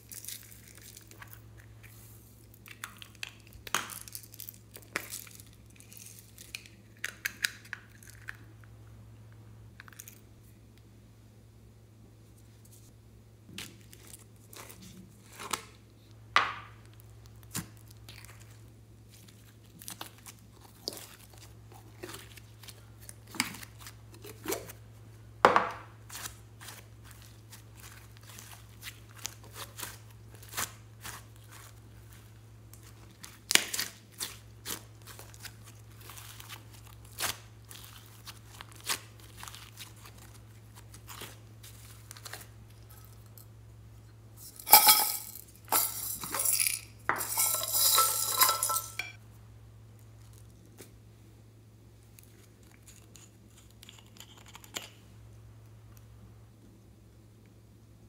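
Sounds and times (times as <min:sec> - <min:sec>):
slime crackling and popping: 0:26.1 - 0:43.4.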